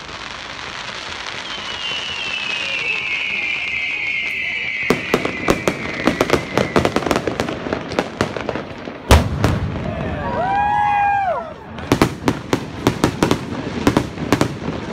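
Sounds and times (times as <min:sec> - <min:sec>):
firework booms: 0:00.0 - 0:14.9
firework crackling: 0:00.0 - 0:14.9
firework whistle falling: 0:00.3 - 0:07.6.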